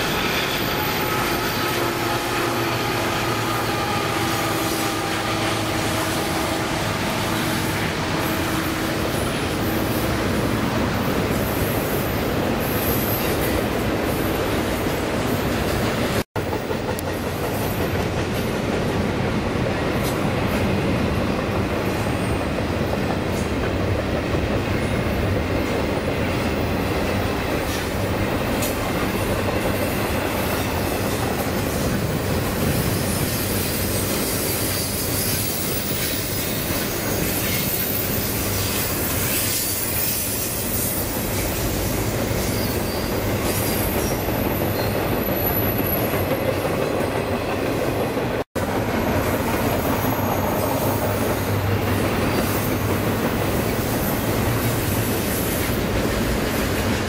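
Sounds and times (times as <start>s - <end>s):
high wheel squeal: 0.0s - 10.2s, 11.4s - 13.7s, 32.7s - 46.4s, 49.0s - 55.8s
train wheels rumbling on rail: 0.0s - 57.0s
rail joint clicks: 13.2s - 57.0s.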